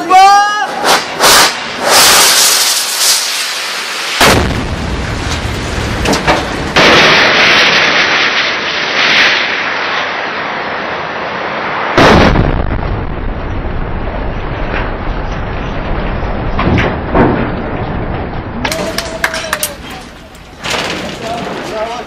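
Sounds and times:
rocket exhaust rushing and cracking: 0.0 - 22.0
heavy explosion: 0.6 - 22.0
low rumble: 4.2 - 7.7, 12.0 - 21.8.

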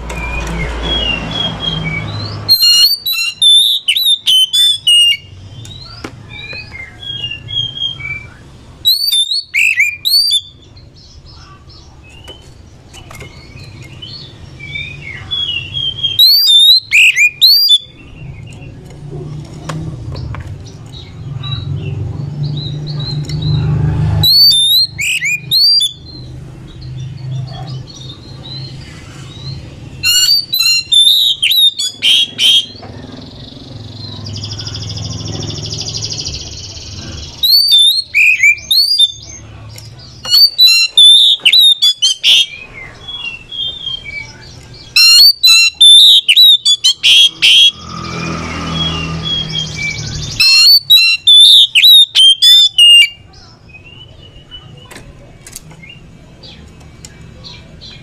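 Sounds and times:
bird whistling song: 0.0 - 11.5, 12.1 - 18.6, 22.5 - 39.4, 40.2 - 54.7
bird buzzy rasping call: 8.8 - 10.5, 30.0 - 32.8, 45.0 - 49.6.

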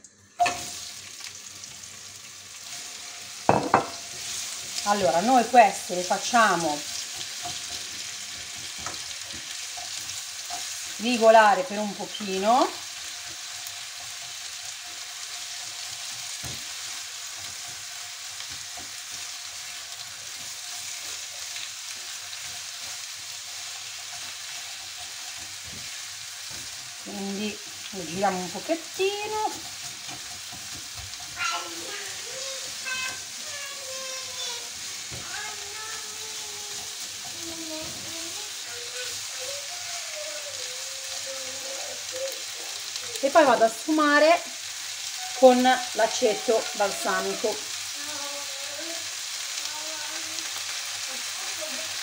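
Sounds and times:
onions sizzling in frying pan: 0.0 - 52.0
spatula stirring: 3.7 - 39.5
spatula scraping and knocking pan: 28.1 - 38.2.

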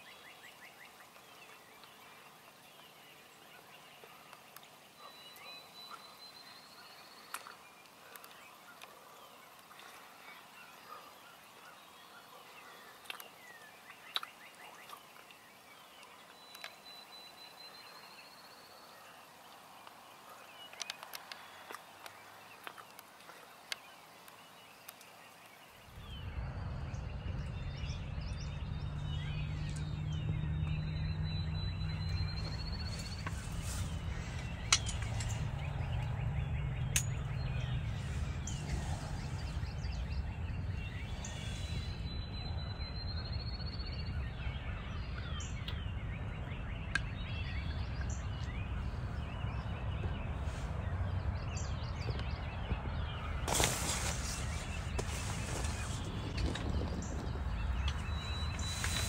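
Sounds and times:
faint bird calls: 0.0 - 50.9
low rumble: 26.0 - 59.0.

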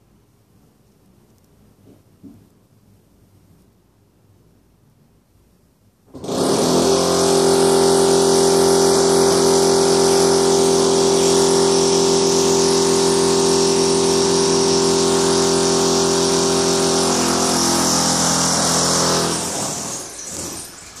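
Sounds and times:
electric drill running: 6.1 - 21.0.

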